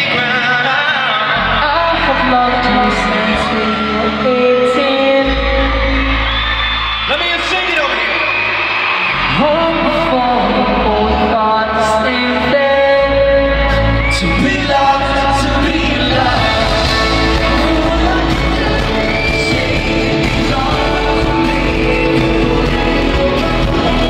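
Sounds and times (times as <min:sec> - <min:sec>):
live pop ballad with male vocal: 0:00.0 - 0:24.0.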